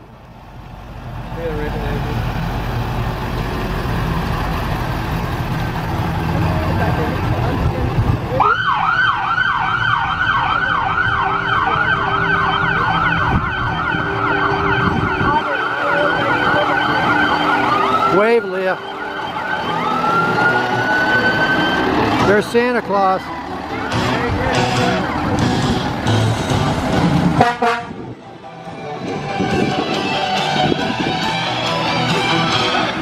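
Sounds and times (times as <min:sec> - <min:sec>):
low engine rumble: 0:00.0 - 0:33.0
fire truck siren: 0:08.2 - 0:33.0.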